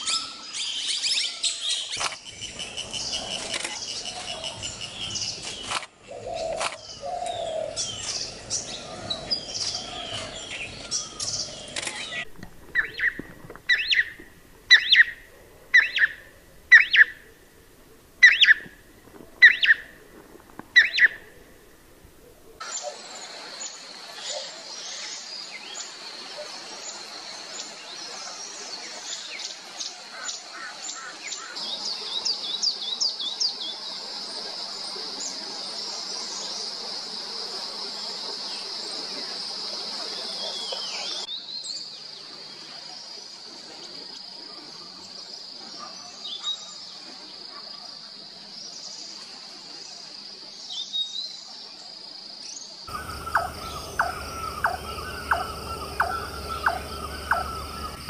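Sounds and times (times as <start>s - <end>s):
bird chirps and calls: 0.0s - 15.2s, 15.8s - 17.2s, 18.2s - 18.7s, 19.4s - 19.9s, 20.8s - 21.2s, 52.9s - 58.0s
high-pitched insect drone: 52.9s - 58.0s.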